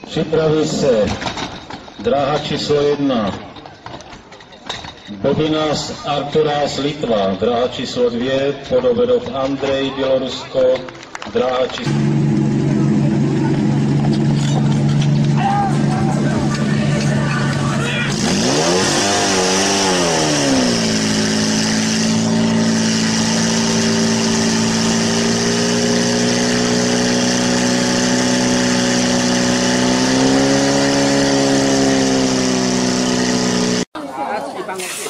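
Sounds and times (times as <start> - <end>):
fire pump engine revving: 11.6 - 33.9.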